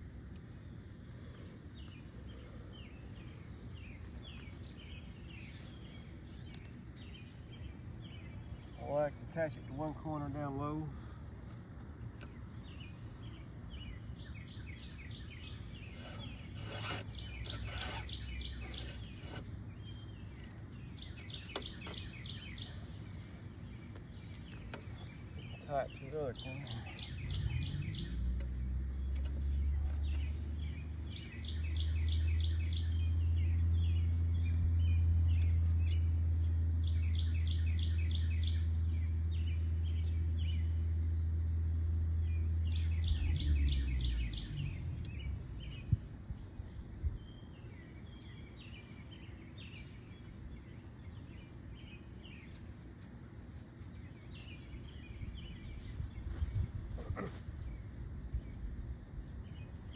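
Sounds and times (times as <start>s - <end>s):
birds trilling: 12.0s - 52.7s, 53.8s - 59.9s
steady low rumble: 22.4s - 48.4s, 53.1s - 59.9s.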